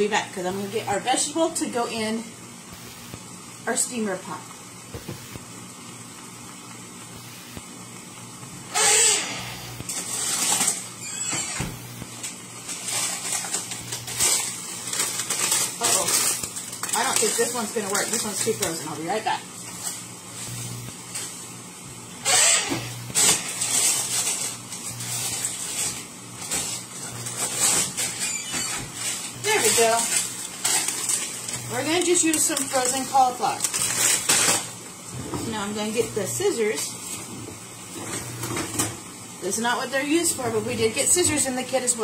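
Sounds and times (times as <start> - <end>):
food sizzling in a pan: 0.0 - 8.7
steady low hum: 0.0 - 10.9, 11.6 - 41.9.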